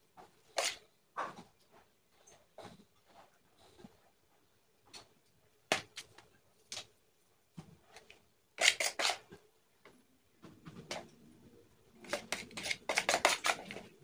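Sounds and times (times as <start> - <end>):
metal spoon scraping a bowl: 8.6 - 9.3, 12.0 - 14.0.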